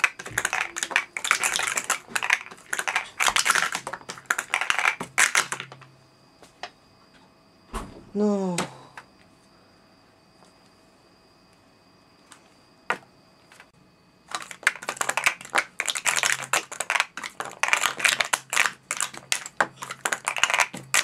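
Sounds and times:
plastic cups clicking and clattering: 0.0s - 5.8s, 14.3s - 21.0s.

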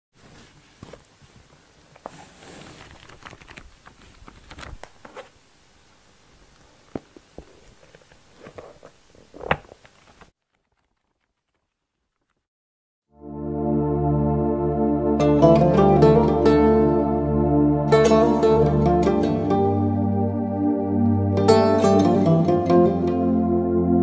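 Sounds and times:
book pages rustling and turning: 0.2s - 5.4s, 6.6s - 12.4s
book shutting knock: 9.4s - 9.8s.

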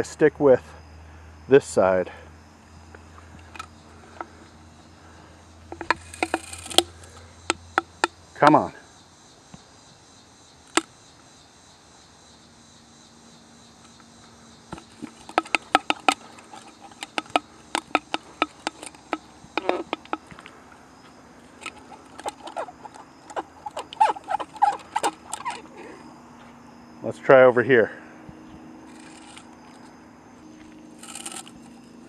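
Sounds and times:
insects chirring: 0.0s - 32.0s
sharp clicks and ticks: 14.7s - 20.4s, 21.6s - 25.7s.

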